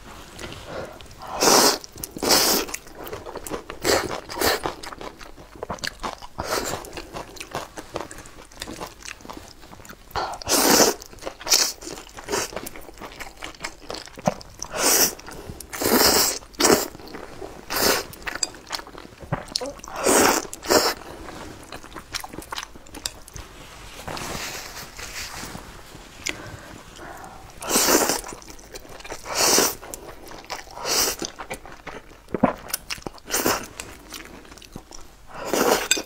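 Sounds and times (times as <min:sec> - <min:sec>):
noodles being slurped: 0:00.4 - 0:04.8, 0:26.2 - 0:31.6
wet chewing: 0:26.2 - 0:36.0.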